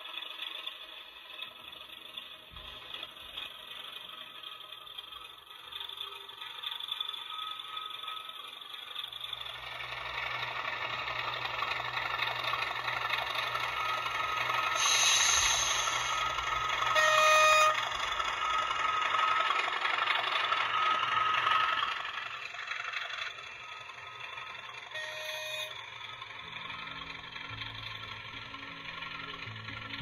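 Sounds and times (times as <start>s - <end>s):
model diesel locomotive engine: 0.0s - 30.0s
brief hiss: 14.7s - 16.2s
locomotive horn blast: 14.8s - 18.0s, 25.0s - 25.7s.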